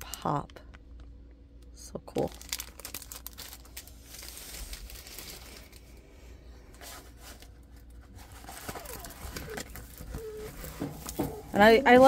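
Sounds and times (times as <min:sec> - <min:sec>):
plastic film crinkling: 0:02.1 - 0:06.0, 0:06.7 - 0:12.0.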